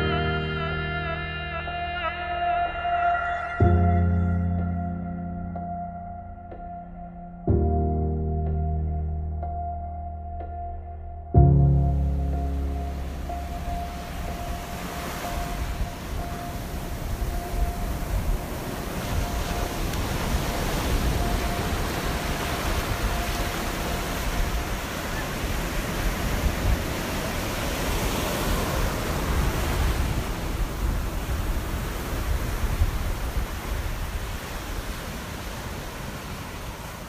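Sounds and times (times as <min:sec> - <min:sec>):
ocean surf rushing: 0:11.7 - 0:37.0.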